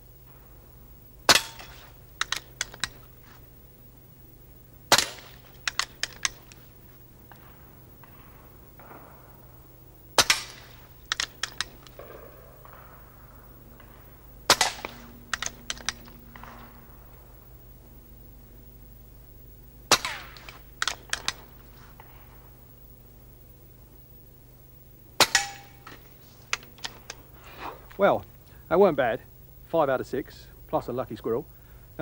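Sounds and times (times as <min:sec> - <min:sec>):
silenced air rifle shots: 0:01.2 - 0:03.5, 0:04.8 - 0:17.8, 0:19.2 - 0:23.0, 0:25.0 - 0:28.1
small sharp clicks: 0:01.3 - 0:03.4, 0:04.9 - 0:06.7, 0:10.2 - 0:12.9, 0:13.8 - 0:16.8, 0:19.9 - 0:22.2, 0:25.2 - 0:27.3.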